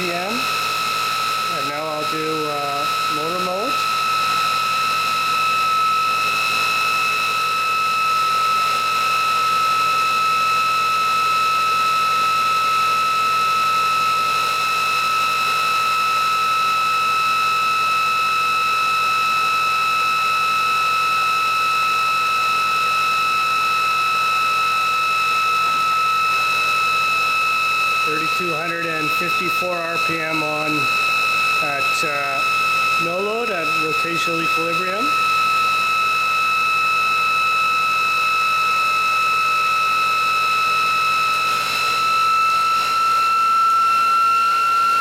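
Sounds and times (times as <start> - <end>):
electric motor whine: 0.0 - 45.0.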